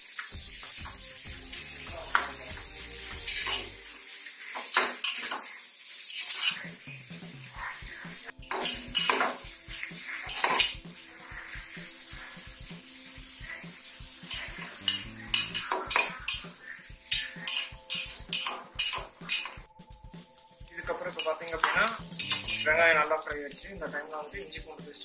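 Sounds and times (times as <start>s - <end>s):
faint frying sizzle: 0.0s - 25.0s
metal spatula scraping pot: 2.1s - 19.7s, 21.1s - 23.0s.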